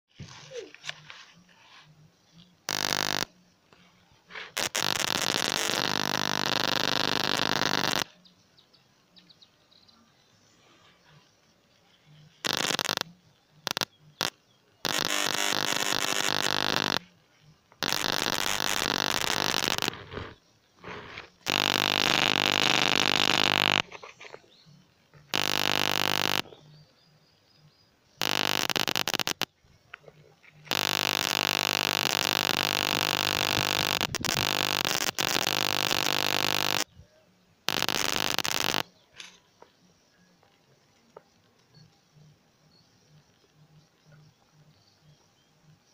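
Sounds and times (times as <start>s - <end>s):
electric arc buzzing and crackling: 2.7s - 3.3s, 4.4s - 8.1s, 12.4s - 17.1s, 17.7s - 24.0s, 25.3s - 26.6s, 28.2s - 29.5s, 30.7s - 36.9s, 37.7s - 38.9s.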